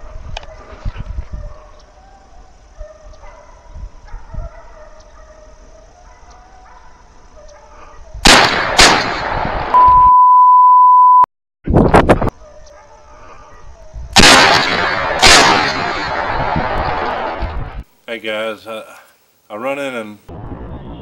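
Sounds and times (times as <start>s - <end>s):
hounds baying: 0.4s - 8.2s, 12.3s - 14.0s
shotgun blasts with echo: 8.2s - 9.7s, 14.2s - 17.4s
bleep tone: 9.8s - 11.3s.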